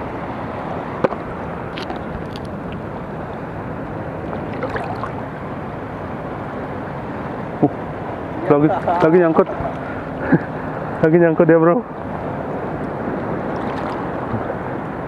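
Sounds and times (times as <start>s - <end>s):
seawater swirling around legs: 4.3s - 5.3s, 13.1s - 14.5s.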